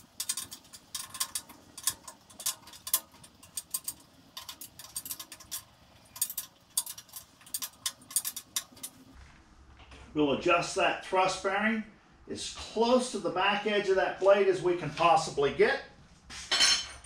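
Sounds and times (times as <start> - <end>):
ratchet wrench clicking: 0.0 - 9.0.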